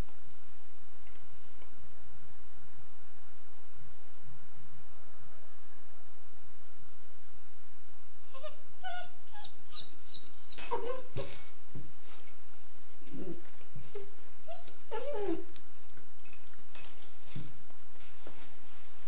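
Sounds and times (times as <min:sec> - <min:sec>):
puppy whimpering: 0:08.3 - 0:11.6, 0:13.1 - 0:15.5
scuffling and rustling: 0:16.7 - 0:19.0.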